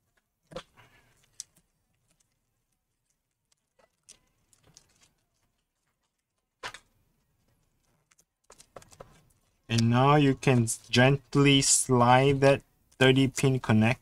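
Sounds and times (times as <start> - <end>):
tape rustling: 0.0 - 11.4
small plastic clicks: 7.8 - 9.9.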